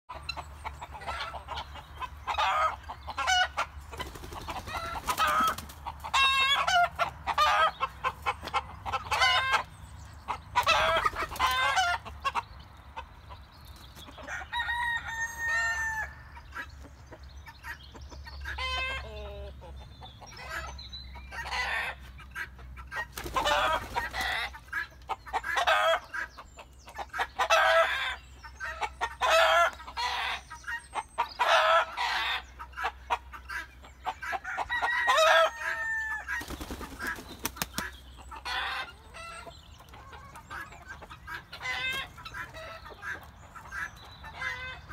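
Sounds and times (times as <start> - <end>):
chickens clucking: 0.1 - 44.9
rooster crowing: 14.3 - 16.2, 34.5 - 36.3.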